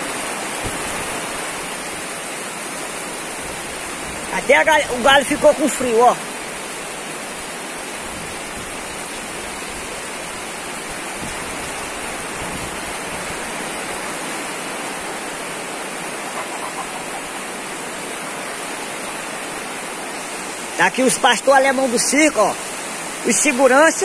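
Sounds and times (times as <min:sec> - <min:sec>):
heavy rain hissing: 0:00.0 - 0:24.0
low wind rumble: 0:06.4 - 0:20.7.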